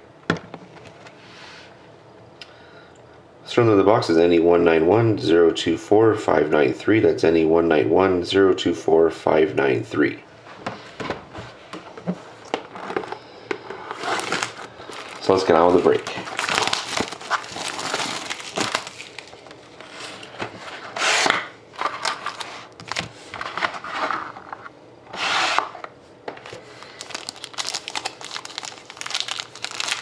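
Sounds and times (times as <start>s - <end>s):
plastic and foil wrapping crinkling: 13.8s - 20.3s, 21.8s - 23.1s, 26.4s - 30.0s.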